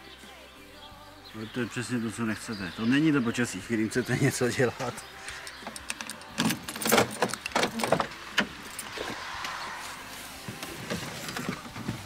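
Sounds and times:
rain hissing: 8.1 - 12.0.

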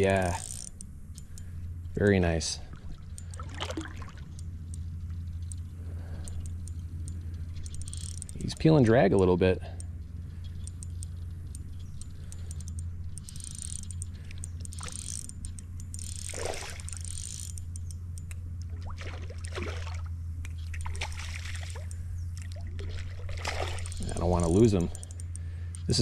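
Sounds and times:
fishing reel clicking: 0.0 - 18.4, 23.7 - 26.0
creek water splashing: 2.7 - 4.4, 16.2 - 17.5, 18.6 - 24.8
fish thrashing in water: 2.8 - 4.3, 16.3 - 17.1, 18.7 - 20.1, 20.7 - 24.3.

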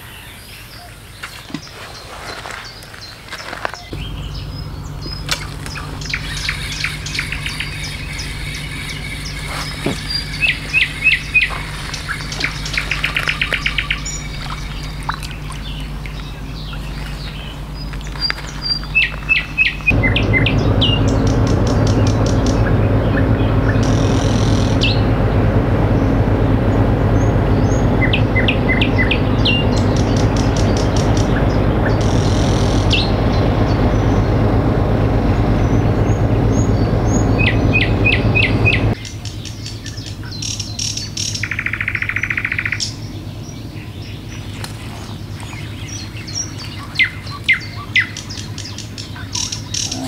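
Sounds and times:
songbirds chirping: 0.0 - 50.0
bird trill: 2.4 - 25.2, 27.2 - 34.4, 35.6 - 50.0
steady low hum: 2.7 - 50.0.

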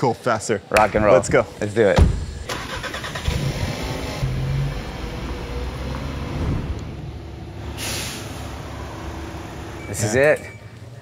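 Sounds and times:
car engine rumble: 2.0 - 9.9
short hiss: 7.8 - 8.4.

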